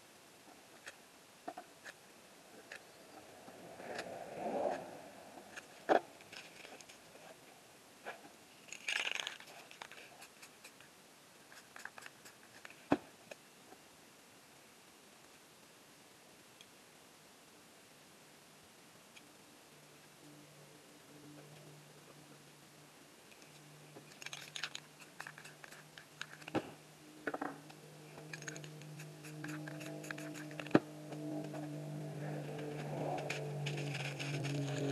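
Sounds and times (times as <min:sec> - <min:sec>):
paper crinkling: 0:08.7 - 0:10.8, 0:24.1 - 0:26.7, 0:28.2 - 0:30.8, 0:32.5 - 0:34.9
hands and tools clicking and rustling: 0:08.7 - 0:10.9, 0:11.5 - 0:13.4, 0:23.3 - 0:31.7, 0:32.5 - 0:34.9
steady low hum: 0:18.8 - 0:34.9.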